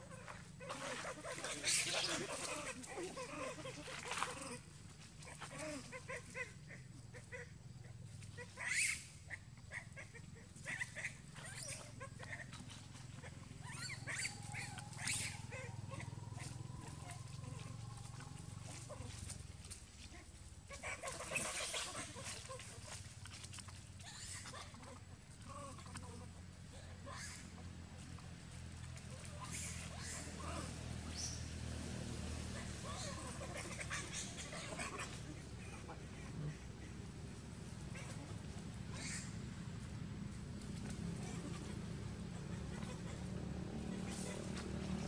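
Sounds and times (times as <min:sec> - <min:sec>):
monkeys squealing and screeching: 0:00.1 - 0:04.6, 0:08.3 - 0:19.4, 0:20.1 - 0:23.0, 0:23.6 - 0:26.2, 0:26.8 - 0:27.7, 0:28.9 - 0:31.6, 0:32.2 - 0:37.0, 0:37.6 - 0:39.6, 0:40.8 - 0:45.0.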